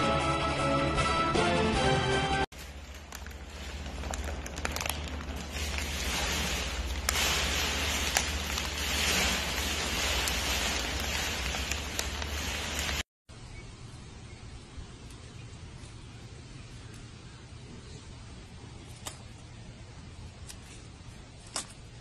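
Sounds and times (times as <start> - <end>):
foil bag crinkling: 2.5 - 13.1.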